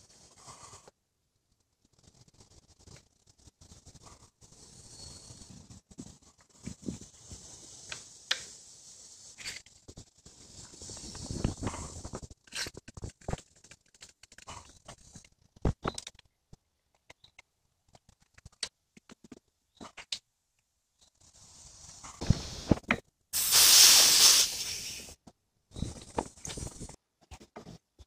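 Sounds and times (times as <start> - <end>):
loud hiss: 21.4 - 22.8, 23.4 - 25.2.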